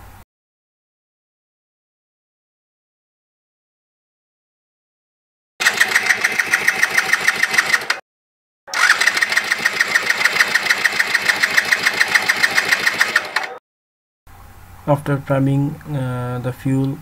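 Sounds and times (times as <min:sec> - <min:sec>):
scooter engine turning over: 0:05.6 - 0:08.0, 0:08.7 - 0:13.6.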